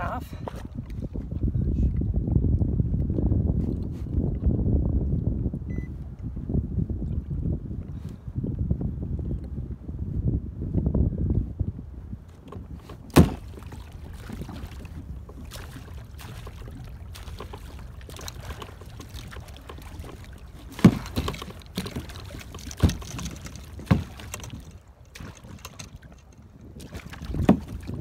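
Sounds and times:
water sloshing around kayak: 0:12.0 - 0:28.0
sharp knocks: 0:13.1 - 0:13.6.

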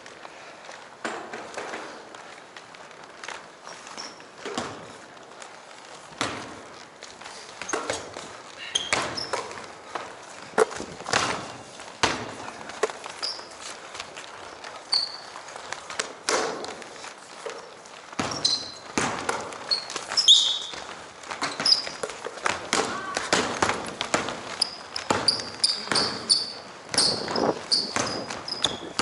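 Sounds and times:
footfalls on wooden floor: 0:00.0 - 0:29.0
sneaker squeaks: 0:03.3 - 0:05.2, 0:06.2 - 0:29.0
basketball bouncing: 0:04.1 - 0:05.0, 0:06.1 - 0:06.8, 0:07.6 - 0:13.5, 0:18.1 - 0:29.0
thuds: 0:06.1 - 0:13.4, 0:15.8 - 0:29.0.

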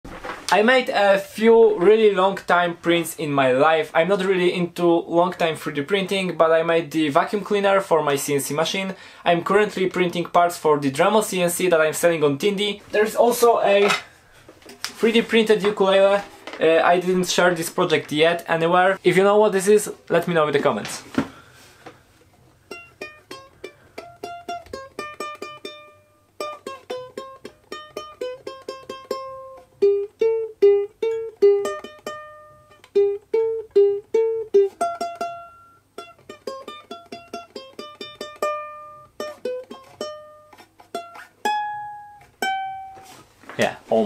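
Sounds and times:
ukulele plucked melody: 0:22.6 - 0:43.2.

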